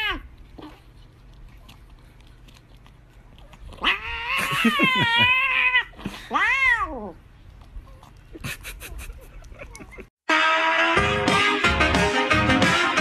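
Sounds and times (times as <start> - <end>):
cat yowling: 0.0 - 0.3, 3.7 - 7.2.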